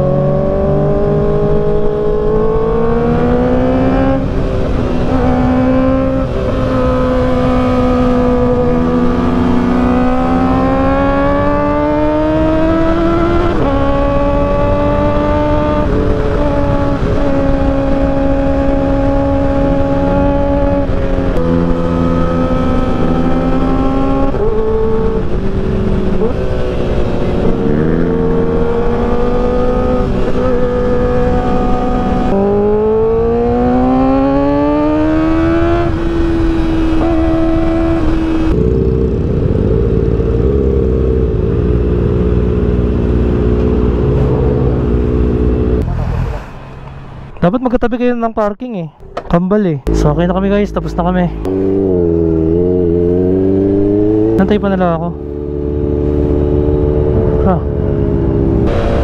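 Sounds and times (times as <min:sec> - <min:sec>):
motorcycle engine running: 0:00.0 - 0:45.9.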